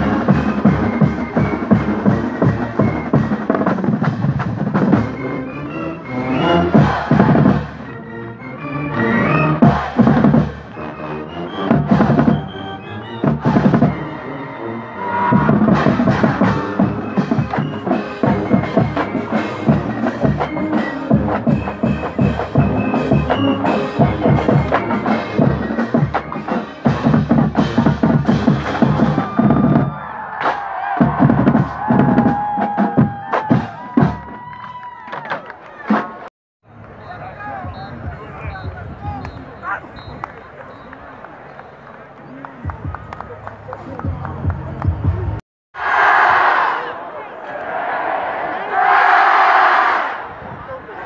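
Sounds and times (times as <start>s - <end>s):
bass drums: 0.0s - 5.2s, 6.7s - 7.8s, 9.6s - 10.7s, 11.6s - 12.4s, 13.2s - 14.0s, 15.2s - 34.5s, 44.0s - 45.4s
brass horns: 0.0s - 29.8s
marching band playing: 0.0s - 34.6s, 35.2s - 36.3s.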